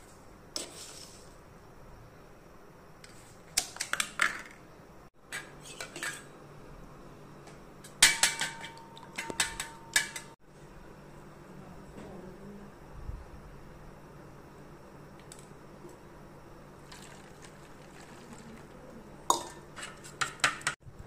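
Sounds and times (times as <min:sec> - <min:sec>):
spoon clinking against steel vessels: 0:08.0 - 0:10.4, 0:19.3 - 0:20.8.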